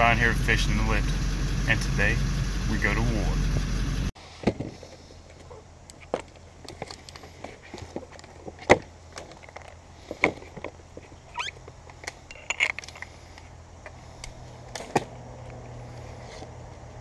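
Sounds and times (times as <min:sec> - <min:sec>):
steady low hum: 0:00.0 - 0:04.2.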